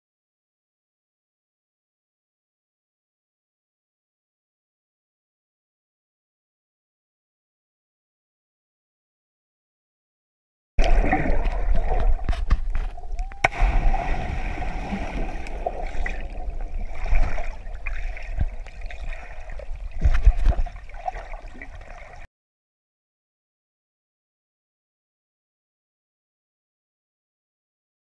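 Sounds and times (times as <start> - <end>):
bubbles gurgling underwater: 10.8 - 22.2.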